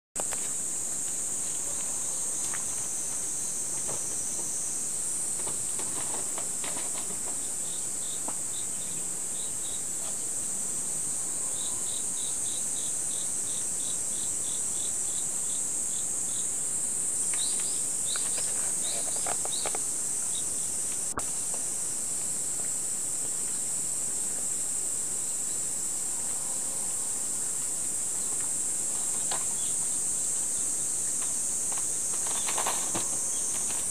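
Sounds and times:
insects chirring: 0.2s - 33.9s
short insect chirps: 11.2s - 33.9s.

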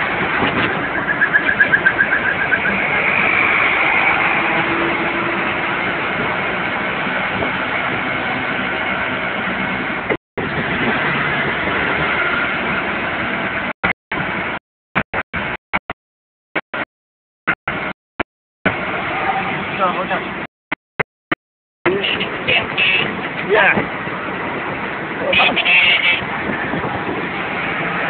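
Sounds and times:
rickshaw engine and road noise: 0.0s - 15.9s, 17.7s - 18.0s, 18.7s - 20.5s, 21.9s - 28.0s.

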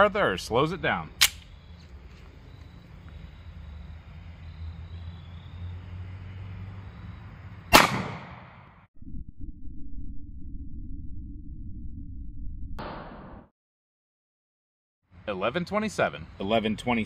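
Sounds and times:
sharp click: 1.2s - 1.5s
pistol shot: 7.7s - 8.6s.

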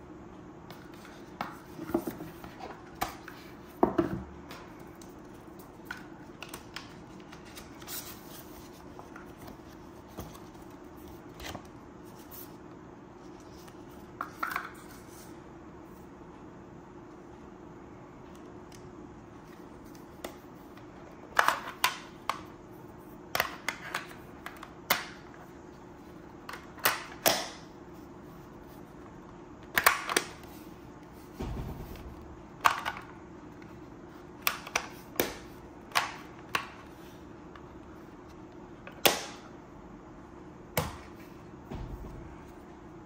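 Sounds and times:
dull thump: 31.4s - 32.4s, 41.7s - 42.4s.

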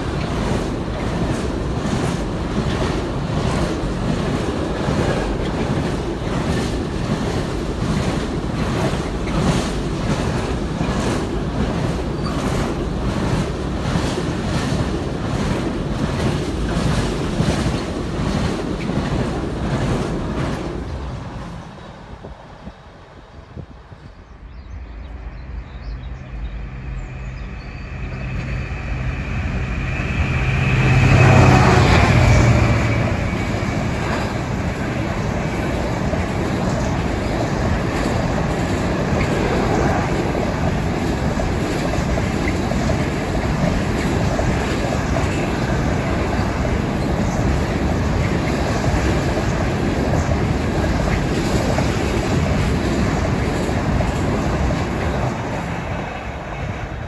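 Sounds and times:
locomotive passing: 0.0s - 57.0s
train wheels on rails: 0.0s - 57.0s.

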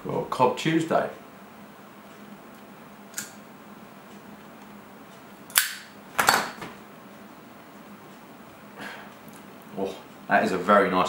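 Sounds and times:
lighter clicking: 3.1s - 3.4s.

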